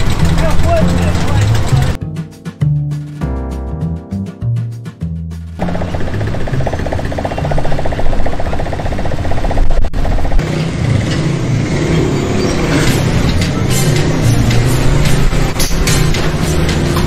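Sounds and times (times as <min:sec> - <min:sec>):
small motorcycle engines puttering: 0:00.0 - 0:02.0, 0:05.6 - 0:17.0.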